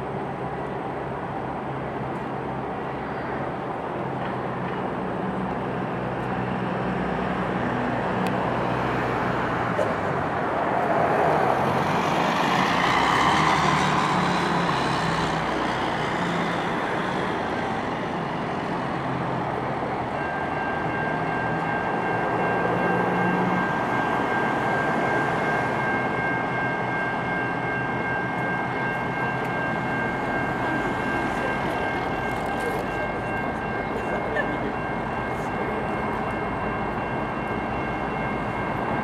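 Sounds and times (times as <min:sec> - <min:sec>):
diesel locomotive running: 0:00.0 - 0:39.0
high squeal of train wheels: 0:02.7 - 0:04.0.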